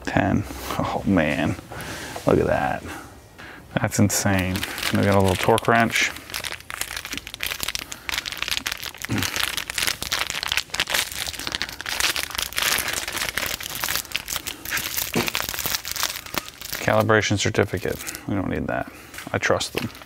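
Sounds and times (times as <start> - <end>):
plastic bag crinkling: 4.1 - 18.3, 19.4 - 20.0.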